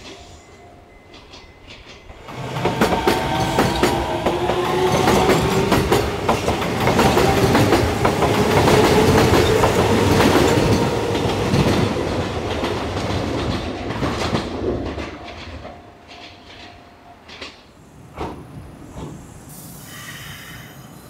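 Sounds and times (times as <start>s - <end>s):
electric train humming: 0.0s - 21.0s
train wheels clacking over rail joints: 1.1s - 19.2s.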